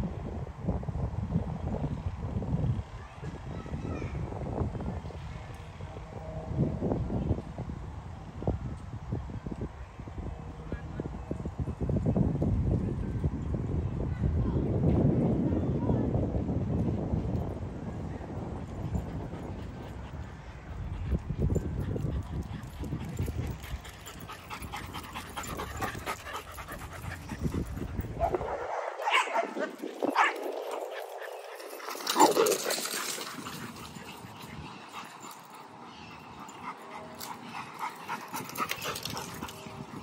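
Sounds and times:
wind rumble on microphone: 0.0s - 35.8s, 37.7s - 40.0s
dogs barking: 28.1s - 39.6s.

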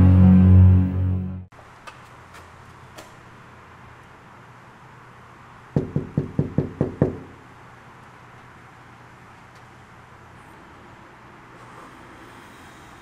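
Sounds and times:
background music: 0.0s - 1.5s
fist knocking on door: 5.8s - 7.3s.

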